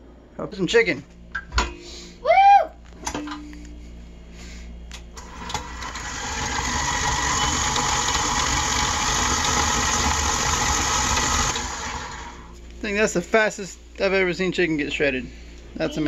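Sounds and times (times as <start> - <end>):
stand mixer running: 5.2 - 12.5.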